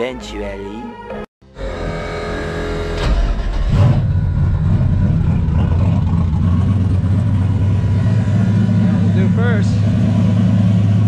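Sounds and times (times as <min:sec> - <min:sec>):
car engine starting and idling: 0:02.6 - 0:11.0.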